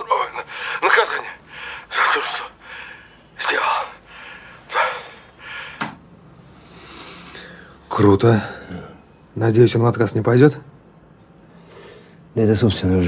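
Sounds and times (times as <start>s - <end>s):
man gasping breaths: 4.0s - 6.0s.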